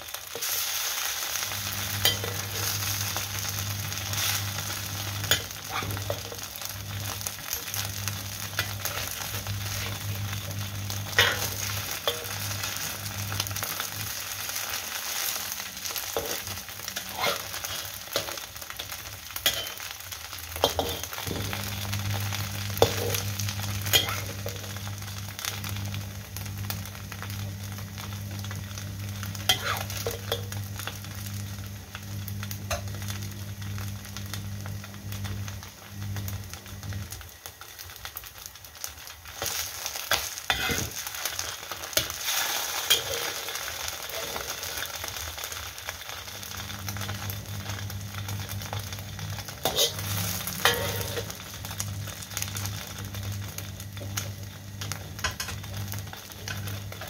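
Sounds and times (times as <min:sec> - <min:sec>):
cake slices sizzling in oil: 0:00.0 - 0:57.0
spatula scraping a wok: 0:00.3 - 0:13.8, 0:14.4 - 0:18.4, 0:19.4 - 0:19.9, 0:20.6 - 0:24.7, 0:29.2 - 0:30.5, 0:39.3 - 0:45.1, 0:49.4 - 0:51.5.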